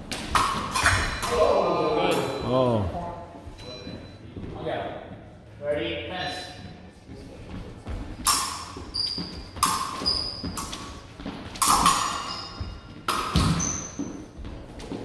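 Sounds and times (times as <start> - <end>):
shoe squeaks: 8.4 - 11.1, 12.0 - 14.4.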